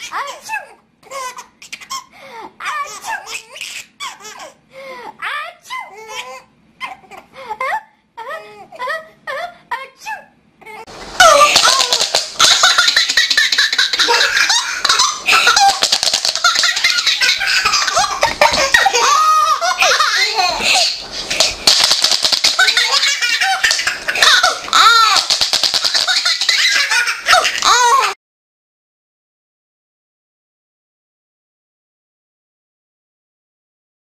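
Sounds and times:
baby laughing: 0.0s - 4.6s, 5.8s - 8.4s, 10.6s - 28.2s.

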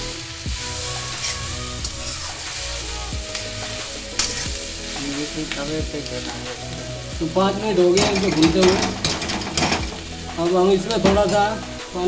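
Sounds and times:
vegetables sizzling in a pan: 0.0s - 12.0s
spoon stirring and scraping: 4.2s - 4.5s.

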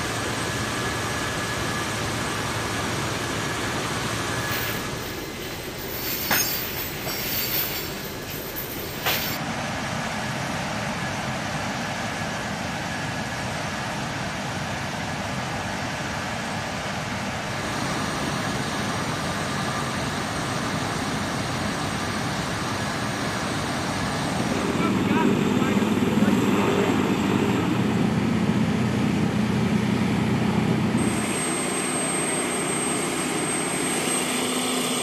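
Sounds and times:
loud engine and machinery noise: 0.0s - 35.0s
metal chains clanking: 4.5s - 9.4s.

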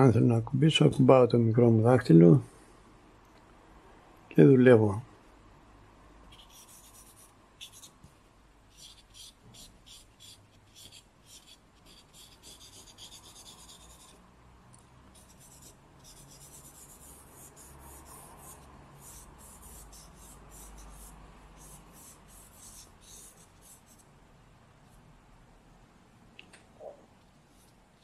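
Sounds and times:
charcoal scratching on paper: 6.3s - 8.0s, 8.7s - 14.2s, 15.1s - 24.1s.

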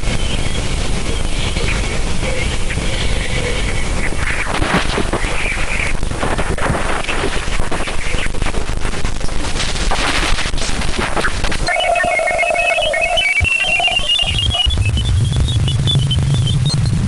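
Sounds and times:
dense crackling hiss: 0.0s - 17.0s.

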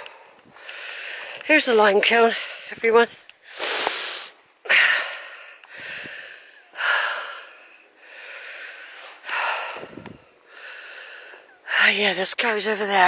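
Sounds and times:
man breathing hard: 0.0s - 1.4s, 3.4s - 11.7s.

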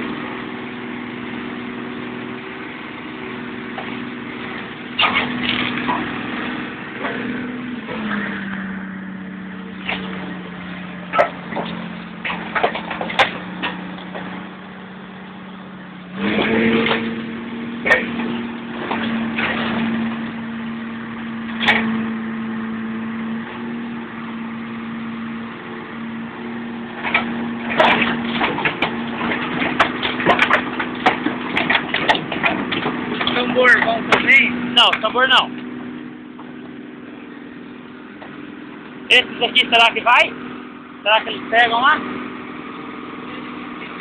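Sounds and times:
heavy machine engine running: 0.0s - 44.0s
car bodywork crushing and tearing: 4.6s - 8.6s, 9.7s - 14.6s, 16.1s - 22.2s, 26.8s - 35.3s.

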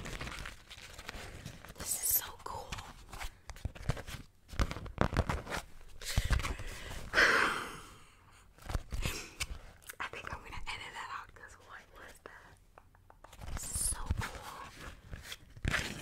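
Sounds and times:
wax wrap crackling and crinkling: 0.0s - 7.2s, 11.1s - 16.0s.

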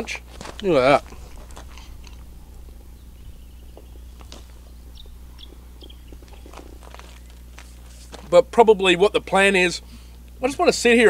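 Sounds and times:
steady low background noise: 0.0s - 11.0s
man chewing food: 0.2s - 8.3s.

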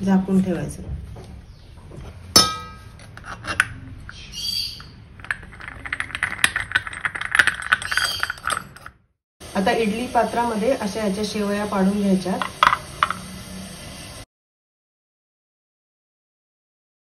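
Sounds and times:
sharp metal clink: 2.4s - 3.0s
metal screw top turning: 3.0s - 8.9s.

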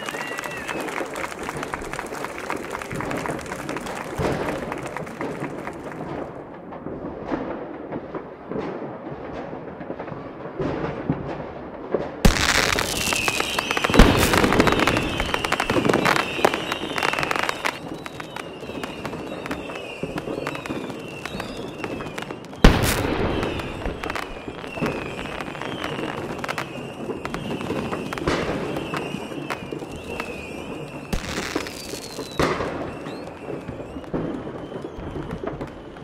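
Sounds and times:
firework whistles: 0.0s - 1.7s, 12.3s - 36.0s
firework bangs: 0.0s - 36.0s
fireworks crackling: 0.0s - 36.0s.

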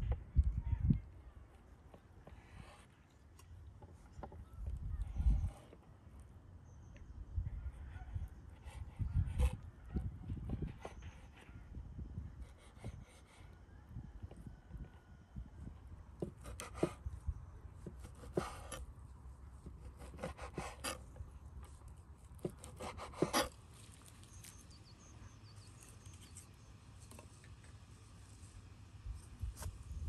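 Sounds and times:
knife scraping through meat: 19.8s - 21.1s, 22.3s - 23.6s.

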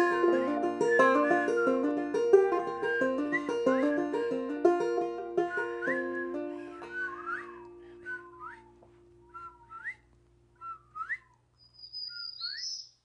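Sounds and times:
plucked string chord: 0.0s - 7.2s.

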